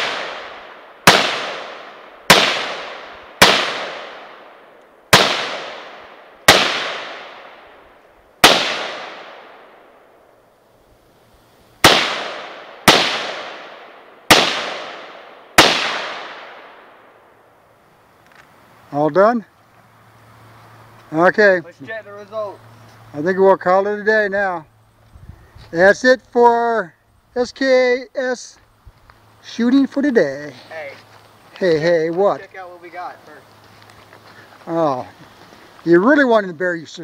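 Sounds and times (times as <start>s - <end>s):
rifle shots echoing: 0.0s - 10.2s, 11.8s - 17.4s.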